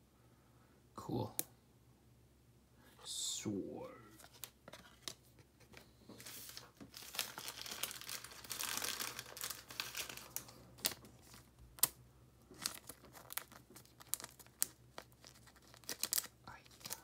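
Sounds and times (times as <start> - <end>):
plastic sleeve crinkling: 4.2 - 17.0.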